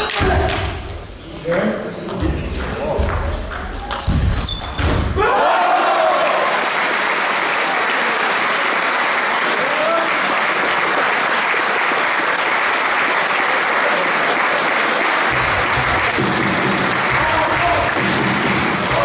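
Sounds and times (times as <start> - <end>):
crowd applauding: 5.3 - 19.0.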